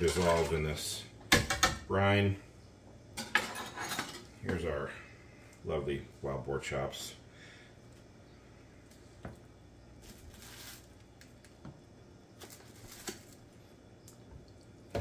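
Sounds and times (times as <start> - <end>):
plastic rustling: 10.0 - 11.6, 12.3 - 13.7.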